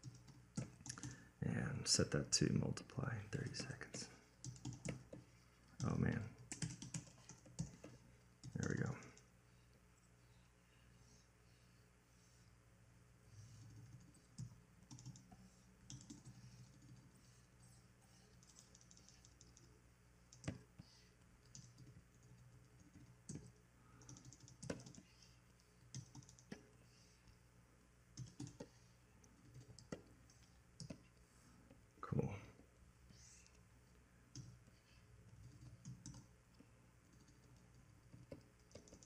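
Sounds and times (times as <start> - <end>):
computer keyboard keystrokes: 0.0 - 1.2, 4.4 - 5.2, 5.8 - 9.2, 13.8 - 15.2, 15.9 - 17.0, 21.4 - 25.0, 25.9 - 26.6, 28.2 - 28.7, 35.4 - 36.3, 37.1 - 39.0.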